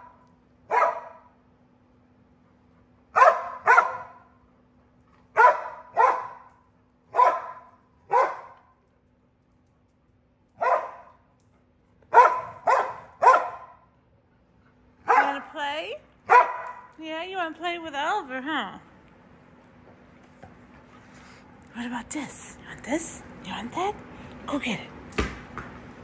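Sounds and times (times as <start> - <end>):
dog barking: 0.7 - 1.3, 3.2 - 4.3, 5.4 - 6.5, 7.1 - 8.6, 10.6 - 11.2, 12.1 - 13.9, 15.0 - 15.5, 16.3 - 16.9.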